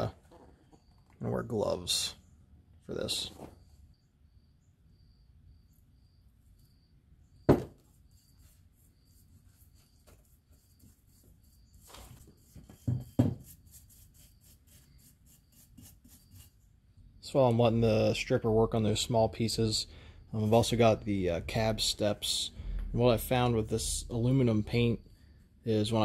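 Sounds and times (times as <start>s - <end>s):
sharp knocks on workbench: 7.5s - 7.8s, 12.8s - 13.5s
soft brush strokes: 7.8s - 12.8s, 13.4s - 16.6s.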